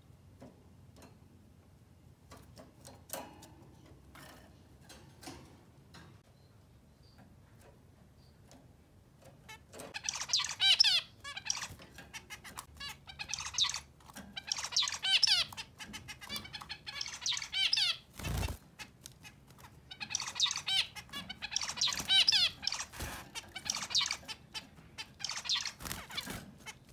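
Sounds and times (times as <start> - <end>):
zebra finch singing: 9.5 - 26.9.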